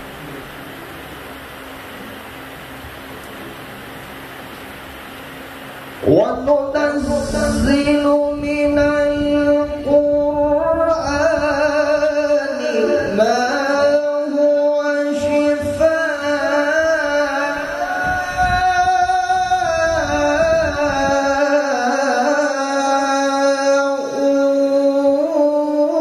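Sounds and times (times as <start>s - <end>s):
man reciting melodically into microphone: 6.0s - 26.0s.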